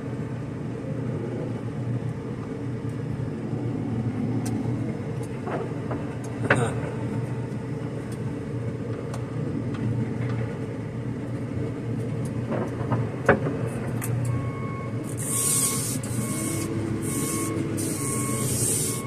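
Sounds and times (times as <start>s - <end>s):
diesel engine running: 0.0s - 19.0s
warning beeper: 14.4s - 19.0s.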